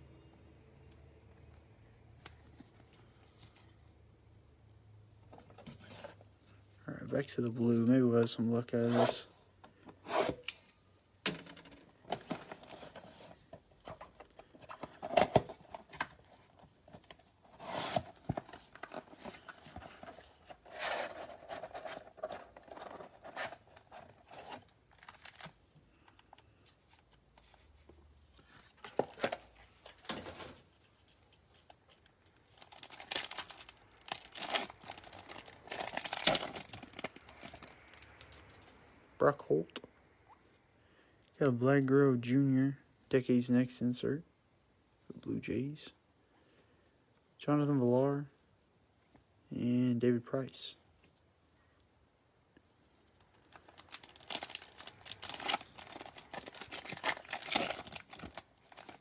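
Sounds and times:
foil pack crinkling: 31.6 - 38.5, 53.2 - 59.0
cardboard box tearing: 54.2 - 59.0.

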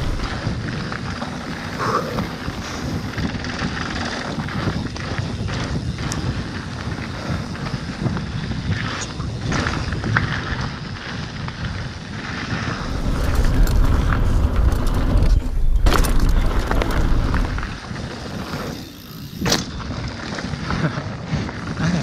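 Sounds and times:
bike rattling over bumps: 0.0 - 22.0
bike tyres rolling over dirt: 0.0 - 22.0
wind buffeting microphone: 0.0 - 22.0.

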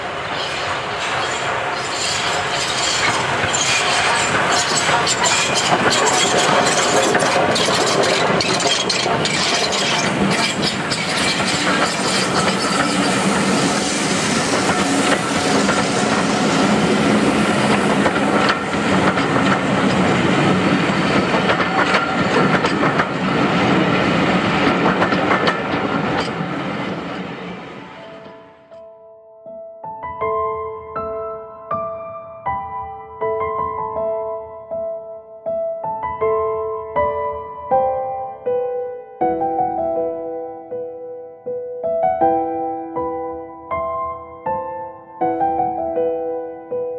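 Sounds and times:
steam locomotive passing: 0.0 - 28.5
train wheels clicking over rail joints: 0.4 - 27.0.

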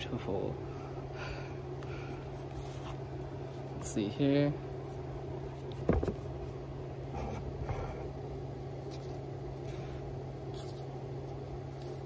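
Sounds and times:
steady low hum: 0.0 - 12.0
knock on cardboard: 5.8 - 6.2
paper scratching and rustling: 8.8 - 12.0.

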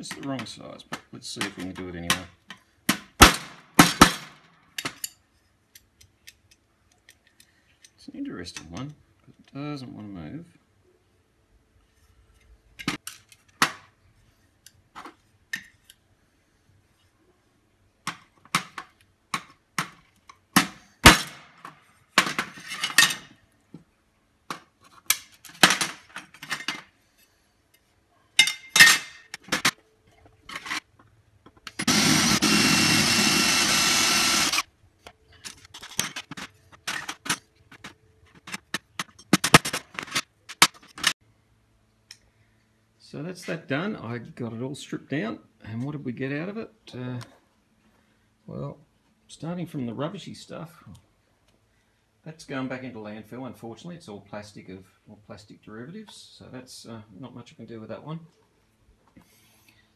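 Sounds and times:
cordless drill running: 31.8 - 34.7.

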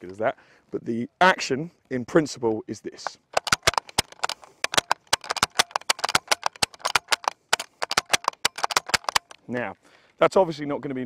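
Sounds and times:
rifle bolt clicking and clacking: 3.0 - 9.4.

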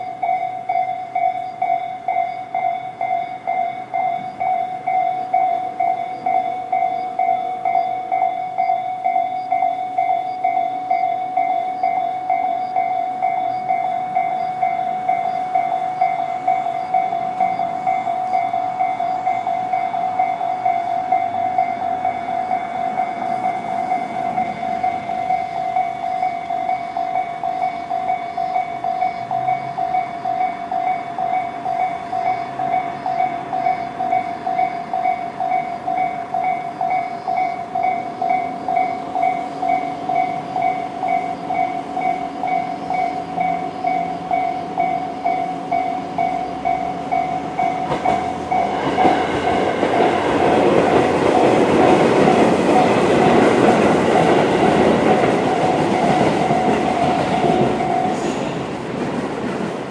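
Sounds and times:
level crossing warning bell: 0.0 - 59.1
electric train rumbling past: 0.0 - 59.9
train wheels clattering on rails: 0.0 - 59.9.

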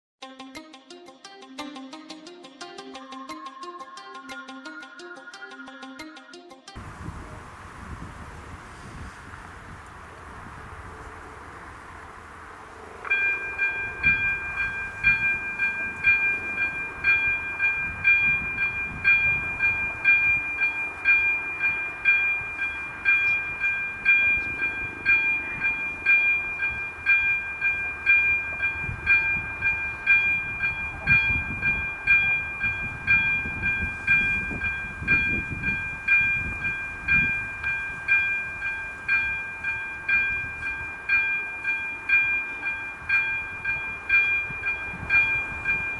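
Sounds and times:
level crossing warning bell: 12.1 - 45.9.

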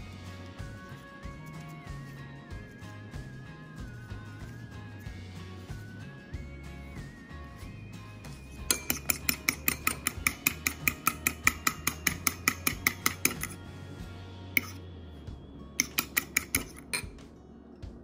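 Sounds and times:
background music: 0.0 - 18.0
fork whisking in ceramic bowl: 7.6 - 13.6, 15.8 - 17.1.

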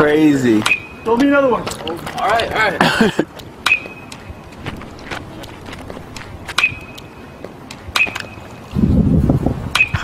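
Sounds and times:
bat hitting balls: 3.6 - 4.3, 6.1 - 7.2, 7.8 - 8.4, 9.7 - 10.0
high ringing tone: 6.5 - 7.4.

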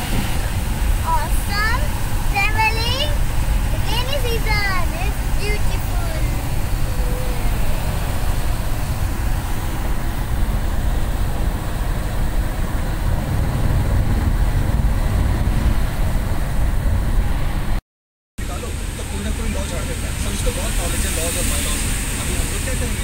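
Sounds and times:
bus road and engine rumble: 0.0 - 17.8, 18.4 - 23.0.

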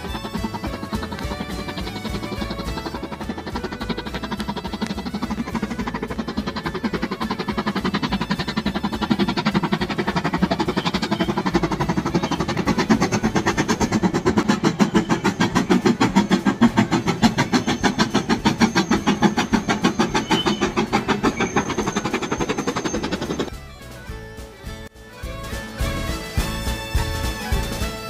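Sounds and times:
steam locomotive chuffing: 0.0 - 28.0.

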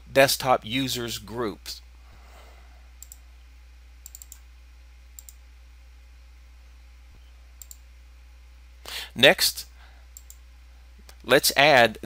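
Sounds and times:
low steady hum: 0.0 - 12.0
computer mouse clicks: 3.0 - 3.2, 4.0 - 4.4, 5.2 - 5.4, 7.6 - 7.8, 10.2 - 10.4.

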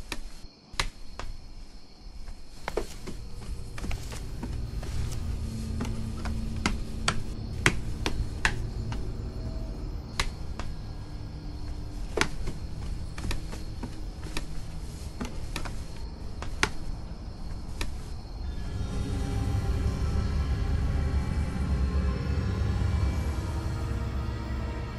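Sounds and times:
footsteps on stone stairs: 0.0 - 18.3.

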